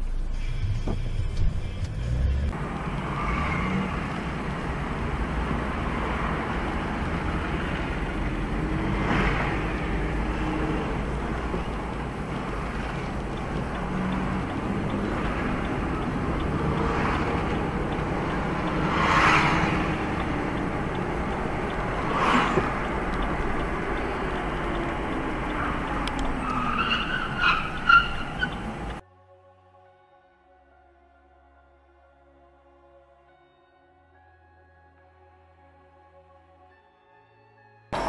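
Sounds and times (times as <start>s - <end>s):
road traffic noise: 0.0s - 29.0s.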